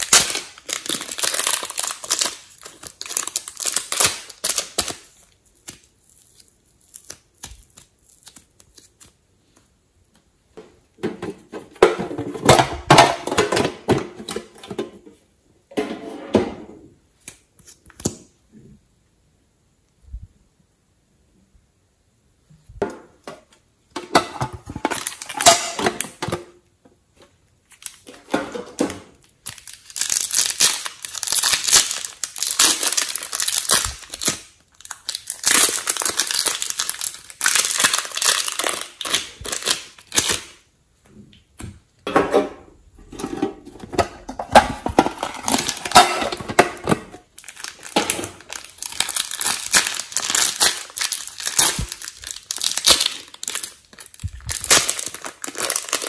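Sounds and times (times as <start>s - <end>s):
plastic packaging crinkling: 0.0s - 9.2s, 24.7s - 26.2s, 27.6s - 28.3s, 29.1s - 40.6s, 44.3s - 56.0s.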